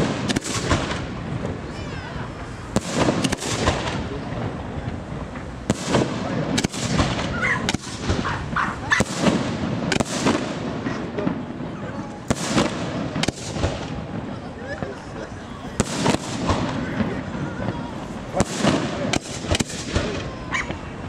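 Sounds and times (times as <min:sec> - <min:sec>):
firework shells bursting: 0:02.7 - 0:11.4.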